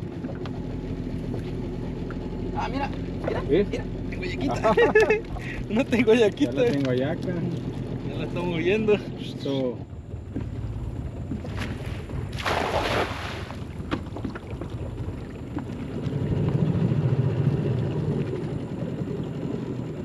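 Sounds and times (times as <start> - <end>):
wind rumbling on microphone: 4.1 - 20.0
net splashing into water: 11.5 - 13.8.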